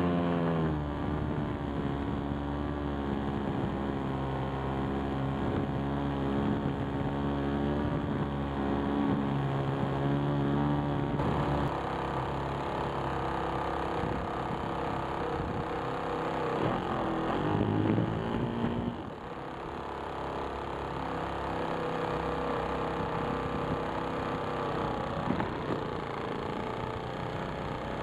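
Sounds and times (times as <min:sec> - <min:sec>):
model aircraft motor and propeller: 0:00.0 - 0:28.0
wind noise on microphone: 0:00.3 - 0:19.6, 0:23.0 - 0:28.0.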